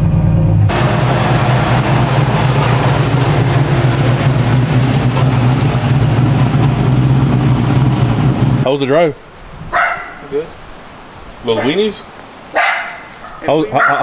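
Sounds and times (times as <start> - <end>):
truck engine droning: 0.0 - 9.4.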